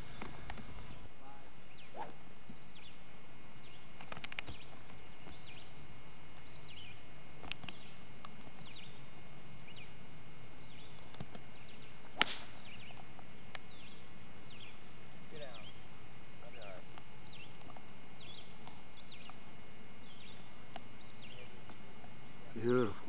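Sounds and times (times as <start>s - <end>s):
tape hiss: 0.0s - 23.0s
bird chirps: 1.6s - 7.0s, 7.6s - 13.0s, 13.6s - 15.8s, 16.4s - 21.6s
golf club hitting ball: 12.2s - 12.7s.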